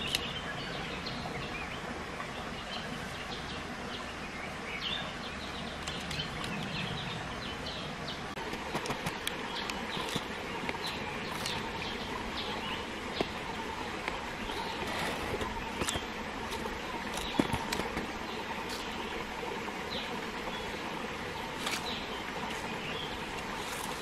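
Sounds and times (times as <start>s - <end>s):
fruit being chewed: 8.4s - 11.8s, 14.0s - 19.0s, 21.6s - 24.0s.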